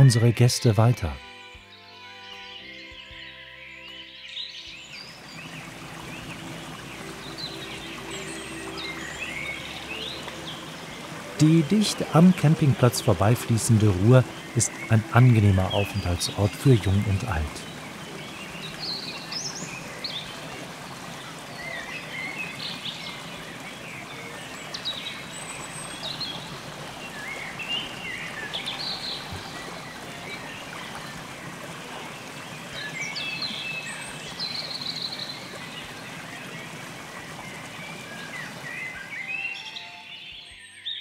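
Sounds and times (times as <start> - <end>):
birds chirping: 0.0 - 41.0
river running over stones: 4.2 - 40.9.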